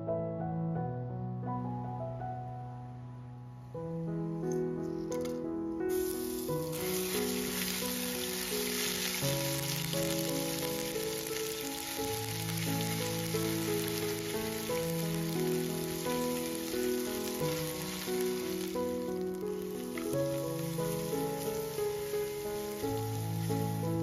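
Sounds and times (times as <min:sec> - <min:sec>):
background music: 0:00.0 - 0:24.0
spices sizzling in hot oil: 0:05.9 - 0:24.0.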